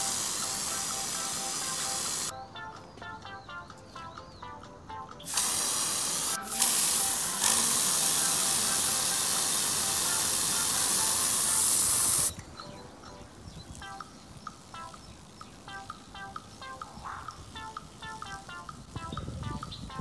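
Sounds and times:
aerosol spray can hissing: 0.0 - 2.3, 5.3 - 12.3.

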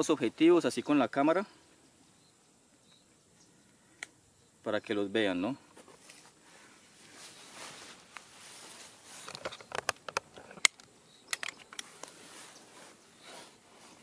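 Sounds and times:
camera handling rustle: 7.8 - 14.0
small clicks and knocks: 9.2 - 12.2.

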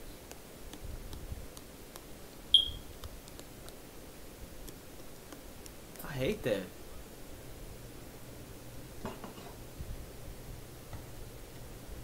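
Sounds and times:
high-pitched chirp: 2.5 - 2.9.

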